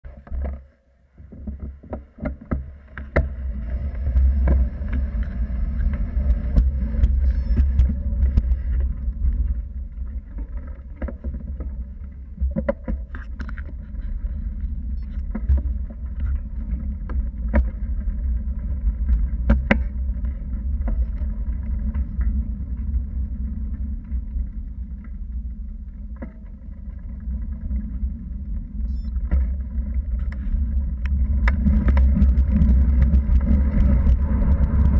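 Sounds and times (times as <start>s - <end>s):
tyre on road noise: 0.0s - 34.9s
clicks and knocks from bumps: 0.1s - 3.4s, 4.0s - 18.1s, 19.0s - 22.9s, 29.2s - 34.9s
wind buffeting microphone: 3.2s - 10.4s, 29.6s - 34.9s.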